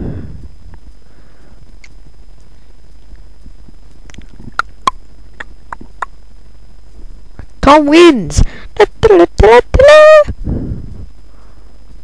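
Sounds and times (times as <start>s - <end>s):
faint high whine: 0.0s - 12.0s
low electrical hum: 0.0s - 12.0s
sharp clicks: 4.0s - 6.2s.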